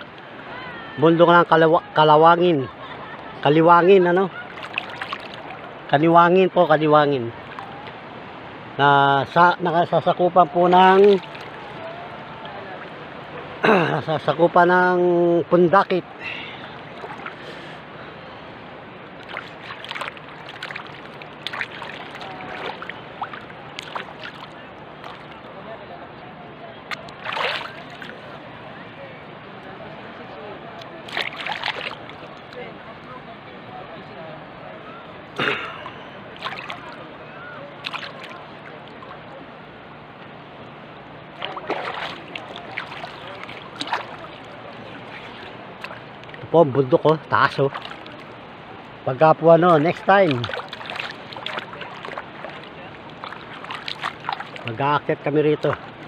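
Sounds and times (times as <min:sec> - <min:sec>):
faint distant voices: 0:00.0 - 0:56.0
small sharp splashes and drips: 0:04.3 - 0:05.8, 0:07.4 - 0:08.0, 0:10.7 - 0:13.0, 0:16.3 - 0:17.8, 0:19.2 - 0:25.6, 0:26.9 - 0:28.3, 0:30.8 - 0:32.7, 0:35.5 - 0:37.1, 0:37.8 - 0:39.2, 0:41.4 - 0:46.5, 0:47.1 - 0:48.5, 0:49.6 - 0:56.0
water lapping against boat: 0:04.3 - 0:06.0, 0:09.9 - 0:13.9, 0:16.0 - 0:25.7, 0:26.9 - 0:28.4, 0:30.8 - 0:32.7, 0:35.3 - 0:56.0.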